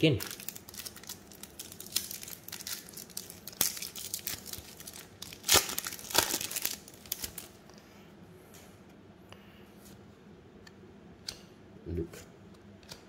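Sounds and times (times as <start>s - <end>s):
wrapper crinkling and tearing: 0.0s - 7.6s.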